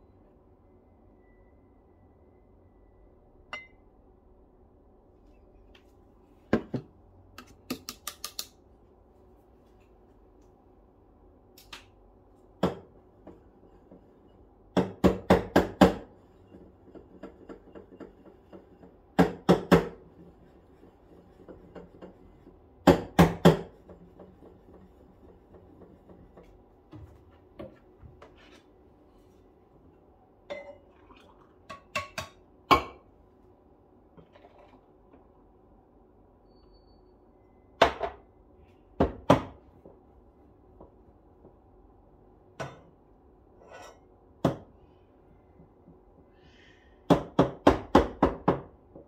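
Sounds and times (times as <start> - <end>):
kitchenware clinking and knocking: 14.8 - 20.0, 30.5 - 30.9, 31.7 - 33.0.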